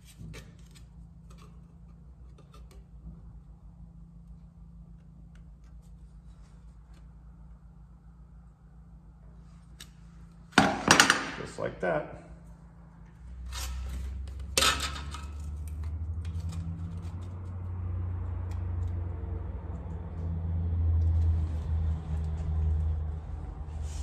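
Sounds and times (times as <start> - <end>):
low machine drone: 1.3 - 24.0.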